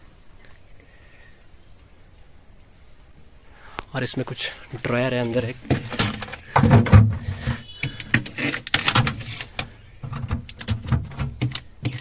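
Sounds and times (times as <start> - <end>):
plastic drawer clicks and rattles: 7.9 - 12.0.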